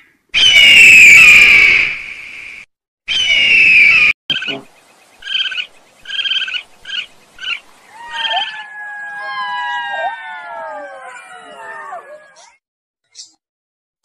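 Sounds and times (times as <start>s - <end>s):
animal calls: 3.1s - 12.6s.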